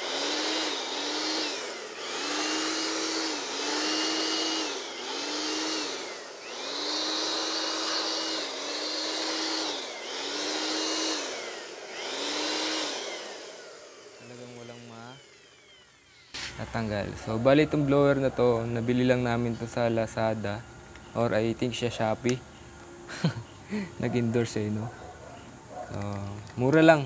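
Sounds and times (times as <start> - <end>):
electric blower whining: 0.0 - 20.0.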